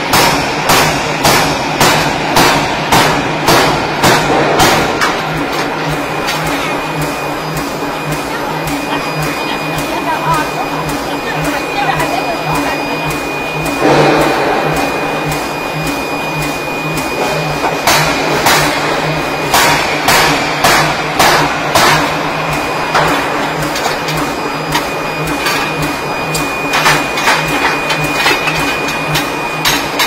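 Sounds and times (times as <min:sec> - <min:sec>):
forging hammer striking metal: 0:00.0 - 0:07.2, 0:13.2 - 0:30.0
machine pulsing hum: 0:00.0 - 0:30.0.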